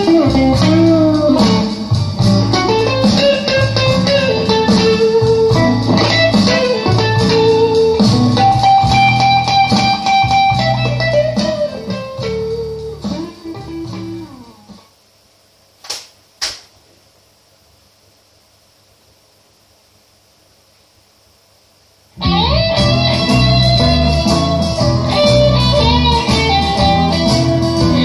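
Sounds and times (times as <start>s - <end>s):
electric guitar music with bass: 0.0s - 14.8s, 22.2s - 28.0s
short clicks: 15.8s - 16.7s.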